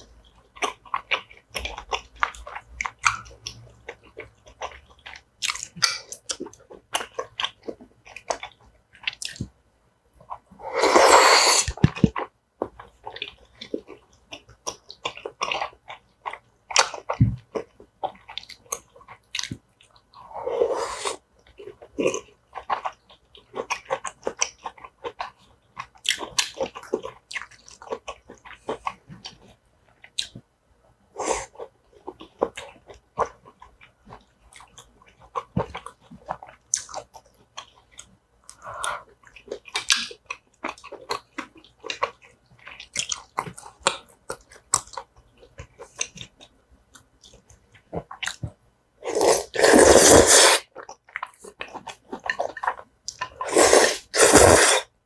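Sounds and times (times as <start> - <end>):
mouth clicks and smacks: 0.2 - 9.6, 22.6 - 30.5, 31.2 - 48.6
wet chewing: 31.2 - 54.9.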